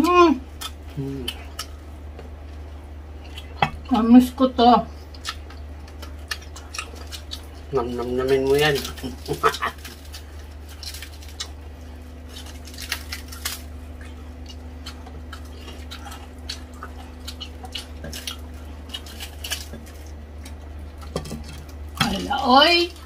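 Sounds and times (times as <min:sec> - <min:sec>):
steady low hum: 0:00.0 - 0:23.0
crispy skin crunching: 0:04.9 - 0:23.0.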